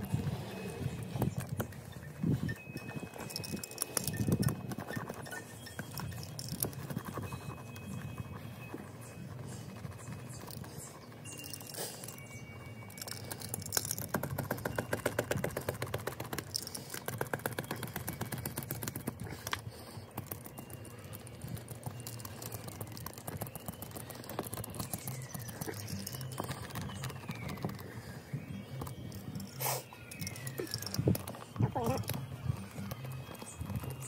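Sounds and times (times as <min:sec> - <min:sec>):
faint squeaks: 0:00.0 - 0:34.0
seam roller rapid clicking: 0:13.0 - 0:27.9.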